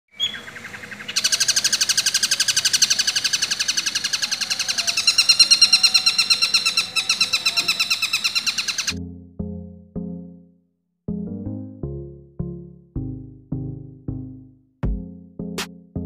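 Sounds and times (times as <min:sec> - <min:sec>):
bird singing shrill repeated notes: 0:00.1 - 0:09.0.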